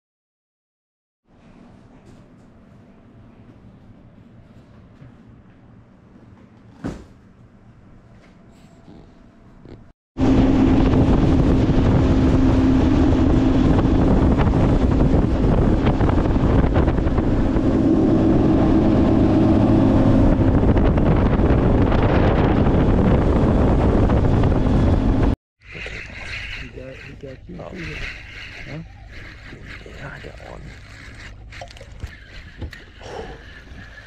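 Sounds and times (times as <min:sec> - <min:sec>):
wind noise on microphone: 0:10.2 - 0:26.7
motorboat engine drone: 0:10.2 - 0:34.0
water rushing off hull: 0:10.2 - 0:34.0.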